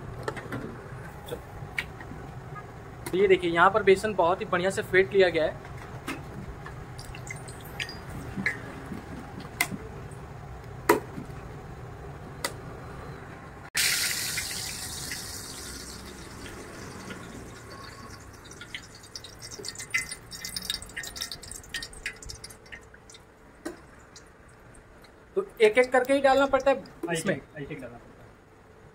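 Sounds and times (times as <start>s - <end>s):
hot oil sizzling: 13.8s - 24.3s
batter crackling in oil: 13.8s - 24.8s.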